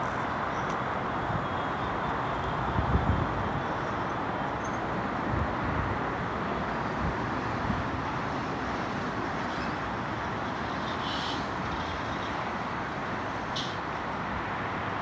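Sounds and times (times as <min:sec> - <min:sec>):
wind gusts on microphone: 0:00.0 - 0:10.8
distant traffic: 0:00.0 - 0:15.0
railway yard engines: 0:00.0 - 0:15.0.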